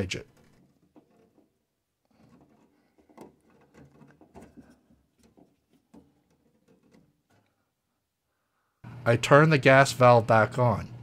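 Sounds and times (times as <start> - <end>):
hand handling rubber hose: 0.0 - 8.2.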